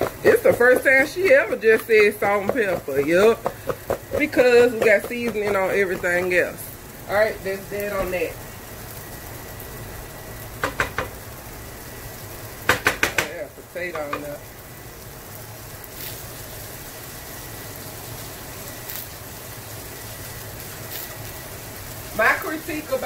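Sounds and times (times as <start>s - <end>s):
wooden spoon knocking on pan: 0.0s - 6.2s, 10.6s - 11.2s, 12.7s - 14.3s
food sizzling in a skillet: 0.0s - 23.0s.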